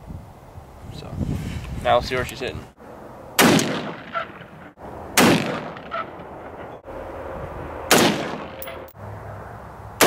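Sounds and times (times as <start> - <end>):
rifle shots with echo: 3.4 - 4.5, 5.2 - 6.0, 7.9 - 8.6.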